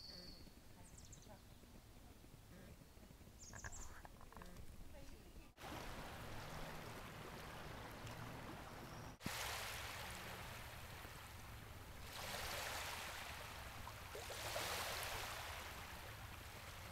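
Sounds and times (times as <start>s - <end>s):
small waves lapping on shore: 5.5s - 16.9s.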